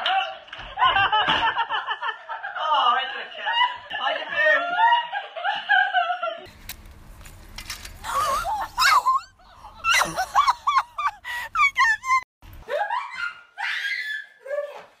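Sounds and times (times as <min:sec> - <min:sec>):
high-pitched laughing and squealing: 0:08.0 - 0:14.8
man laughing: 0:08.1 - 0:12.9.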